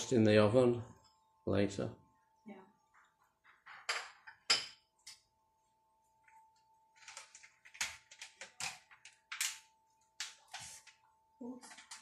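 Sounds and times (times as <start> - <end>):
faint steady hum: 0.0 - 3.2.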